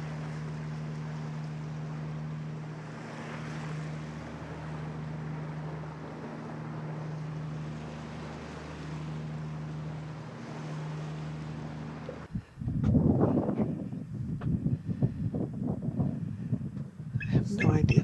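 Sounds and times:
water wash: 0:00.0 - 0:14.4
boat engine drone: 0:00.0 - 0:18.0
wind noise on microphone: 0:12.2 - 0:18.0.

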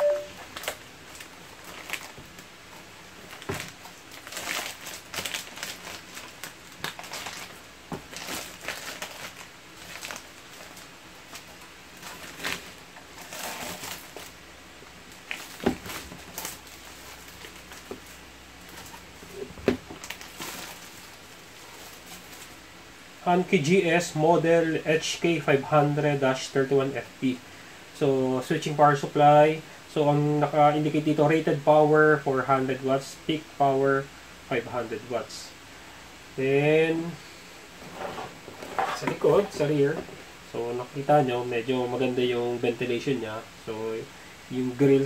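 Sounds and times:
plastic wrapping crinkling: 0:00.1 - 0:14.4, 0:15.1 - 0:22.6.

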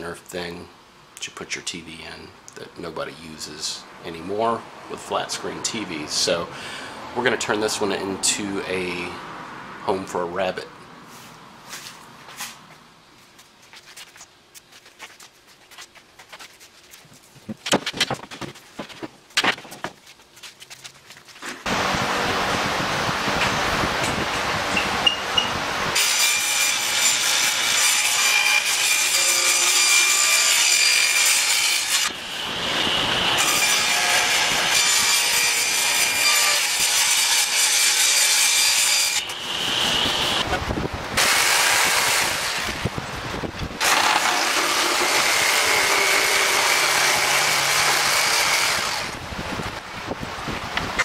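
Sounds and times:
power saw cutting wood: 0:25.9 - 0:40.5, 0:41.2 - 0:42.9, 0:43.8 - 0:49.2.

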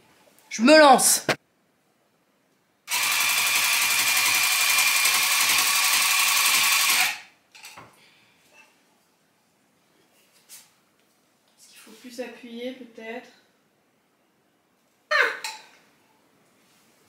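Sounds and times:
tufting gun buzzing: 0:02.9 - 0:07.3.

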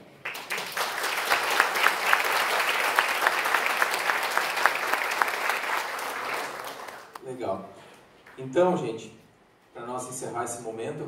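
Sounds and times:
audience applauding: 0:00.2 - 0:07.2.

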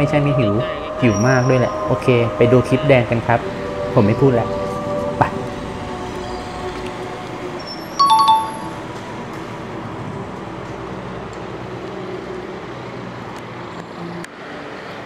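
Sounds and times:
passing traffic hum: 0:00.0 - 0:15.0
two-note ding-dong chime: 0:08.0 - 0:08.8.

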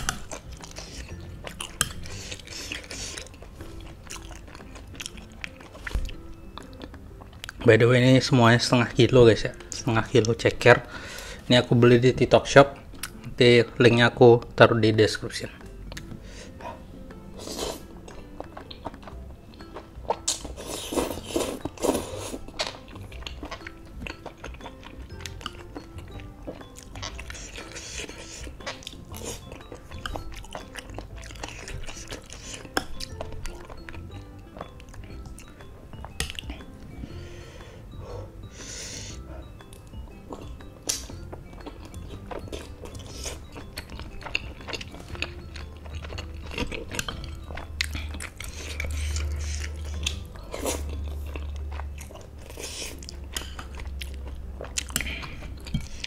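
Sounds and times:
close chewing mouth sounds: 0:00.0 - 0:07.6, 0:17.4 - 0:37.4, 0:38.0 - 0:56.0
soft background music: 0:00.0 - 0:56.0
person slurping noodles: 0:20.6 - 0:22.4.

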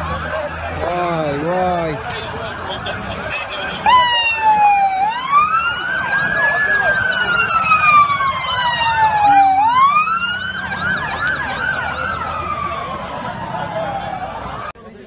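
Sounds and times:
slow wailing siren: 0:00.0 - 0:03.0, 0:03.8 - 0:14.8
quick sweeping siren: 0:03.8 - 0:14.7.

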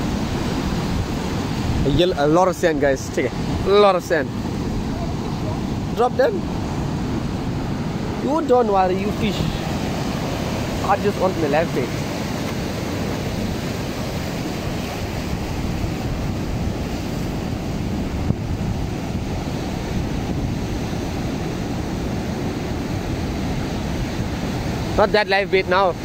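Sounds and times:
ocean surf breaking on rocks: 0:00.0 - 0:26.0
wind buffeting microphone: 0:00.0 - 0:26.0.

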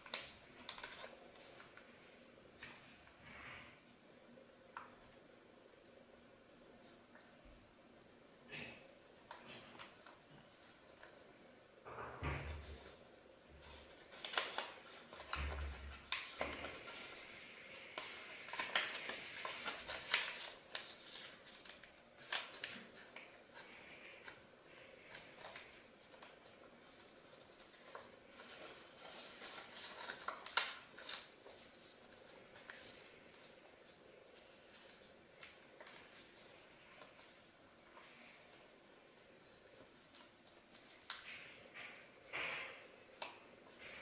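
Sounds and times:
sharp paper crackles: 0:00.0 - 0:01.9, 0:13.6 - 0:44.0
paper crinkling and rustling: 0:00.0 - 0:03.8, 0:12.2 - 0:44.0.

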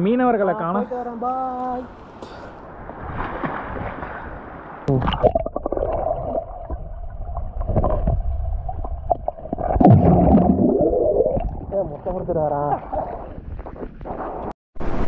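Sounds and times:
water splashing: 0:03.0 - 0:14.5
underwater gurgling and bubbling: 0:04.9 - 0:12.1.

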